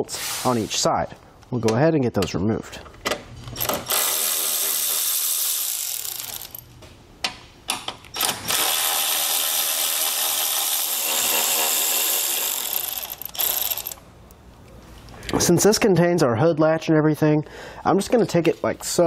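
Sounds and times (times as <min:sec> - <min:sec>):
electric ratchet whirring: 0:03.6 - 0:06.7, 0:08.2 - 0:14.0
ratchet clicks: 0:03.6 - 0:06.7, 0:08.1 - 0:14.0.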